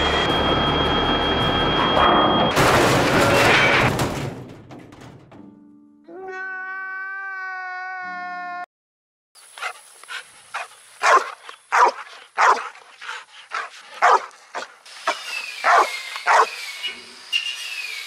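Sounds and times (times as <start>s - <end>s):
dog barking: 10.5s - 12.8s, 13.5s - 14.7s, 15.6s - 16.6s.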